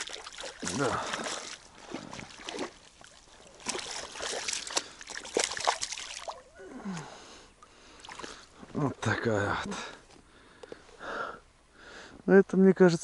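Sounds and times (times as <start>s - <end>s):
fish thrashing and water splashing: 0.0s - 7.0s, 7.6s - 8.6s.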